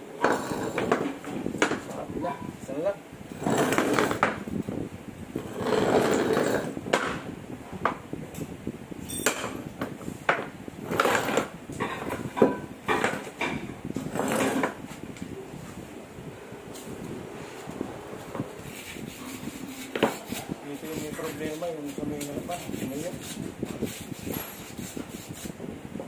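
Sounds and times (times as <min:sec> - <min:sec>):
metal scraping on concrete floor: 0:00.2 - 0:02.0, 0:03.4 - 0:04.4, 0:05.4 - 0:06.8, 0:10.8 - 0:14.8, 0:16.7 - 0:25.0
sharp metal knocks: 0:09.1 - 0:09.7.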